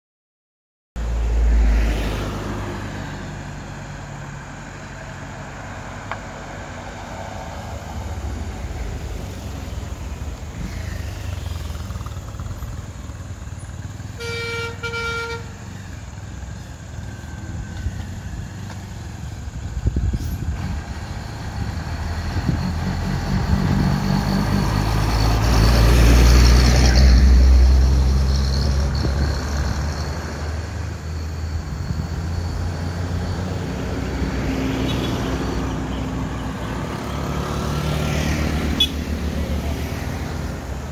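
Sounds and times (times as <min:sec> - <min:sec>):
vehicle engines passing: 0:01.0 - 0:40.9
vehicle horn: 0:14.0 - 0:15.8, 0:38.7 - 0:39.1.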